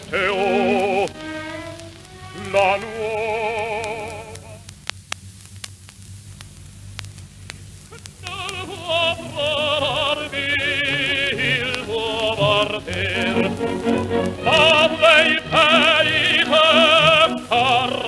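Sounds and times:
operatic singing with orchestra: 0.0s - 4.6s, 8.3s - 18.0s
record surface clicks and crackle: 0.0s - 18.0s.

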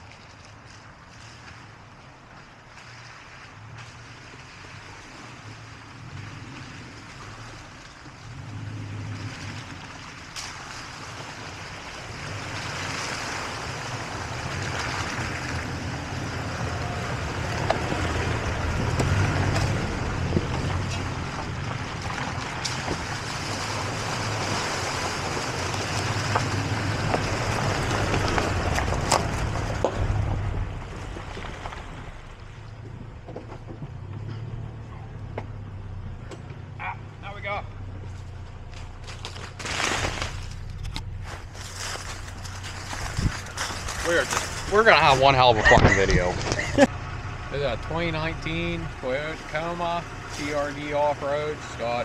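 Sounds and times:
truck engines running slowly: 0.0s - 52.0s
tyres cracking over rocks and sticks: 9.4s - 34.3s, 38.1s - 46.9s.

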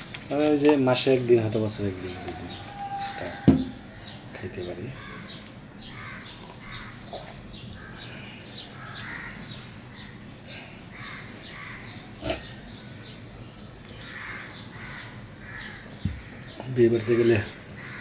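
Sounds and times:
birds chirping: 0.0s - 18.0s
sharp knock: 3.5s - 3.8s.

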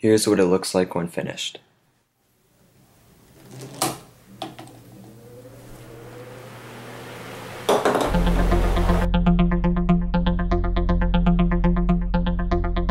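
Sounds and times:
electric desk fan humming: 2.5s - 9.1s
plastic ball rolling down track: 3.4s - 5.8s, 7.6s - 8.4s.

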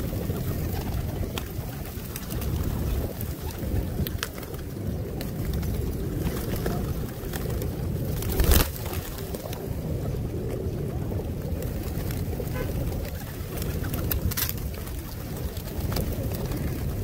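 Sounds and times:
pigeons cooing: 0.0s - 17.0s.

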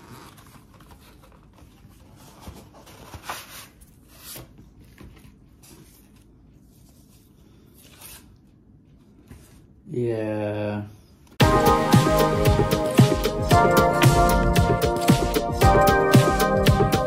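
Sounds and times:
cardboard and paper rustling: 0.0s - 9.7s.

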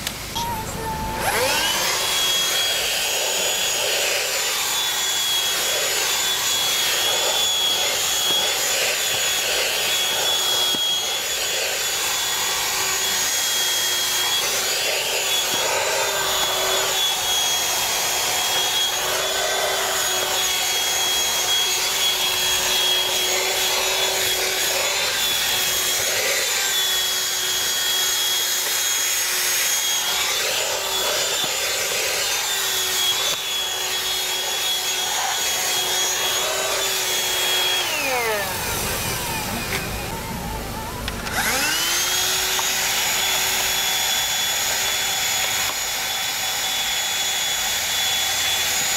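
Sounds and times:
handheld vacuum whining: 0.0s - 48.9s
vacuum nozzle rubbing on carpet: 1.2s - 39.9s.

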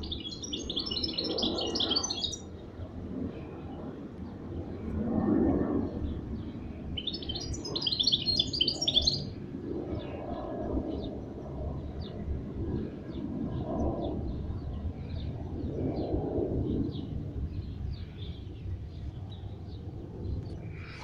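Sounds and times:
finch singing: 0.0s - 2.4s, 7.0s - 9.3s.

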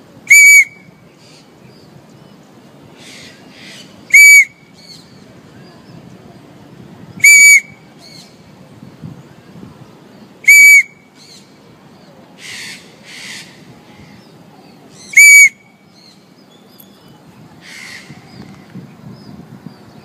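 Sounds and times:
whistle blasts: 0.3s - 0.9s, 4.1s - 4.6s, 7.2s - 7.8s, 10.5s - 11.1s, 15.2s - 15.7s.

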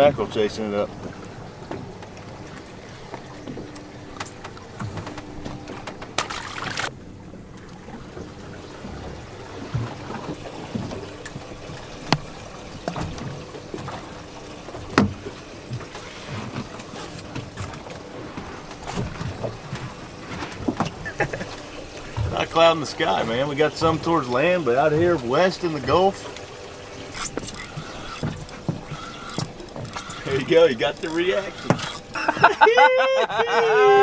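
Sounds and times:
water lapping against boat hull: 0.0s - 33.0s
knocks and clicks of gear: 1.0s - 6.9s, 8.9s - 14.1s, 27.0s - 32.2s.

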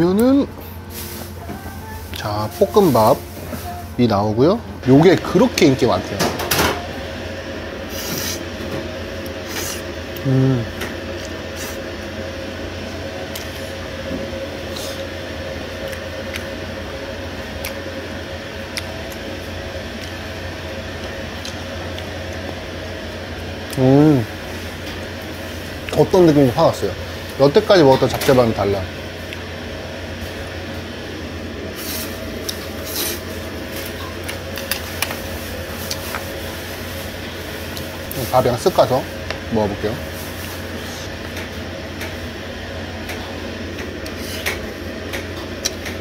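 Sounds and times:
low room hum: 0.0s - 46.0s.

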